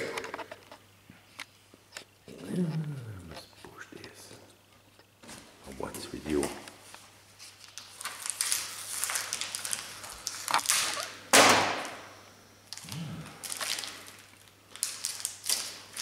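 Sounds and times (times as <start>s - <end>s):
plastic wrapper crinkling: 7.4s - 11.2s, 12.7s - 16.0s
wrapper tearing: 7.5s - 11.2s, 12.7s - 16.0s.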